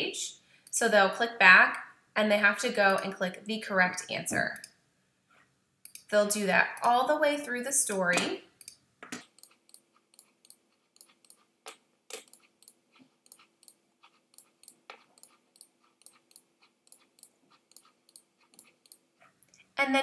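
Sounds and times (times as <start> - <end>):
faint irregular clicking: 5.8 - 6.1, 8.6 - 19.6.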